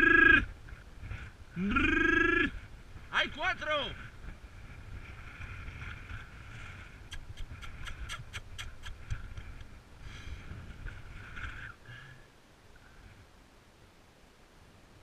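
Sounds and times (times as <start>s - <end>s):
wind buffeting microphone: 0.0s - 11.9s
sharp ticks: 7.1s - 9.7s.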